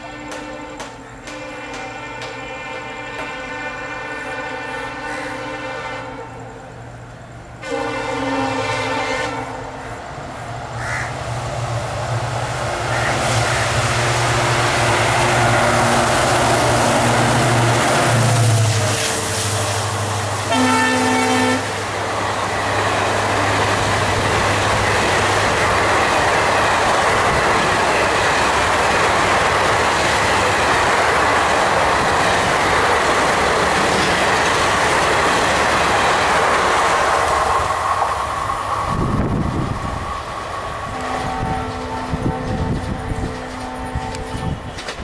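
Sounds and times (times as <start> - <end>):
locomotive horn blast: 0.0 - 6.6, 7.6 - 9.8, 12.9 - 21.9, 40.9 - 45.0
train coaches rumbling and clacking: 0.0 - 45.0.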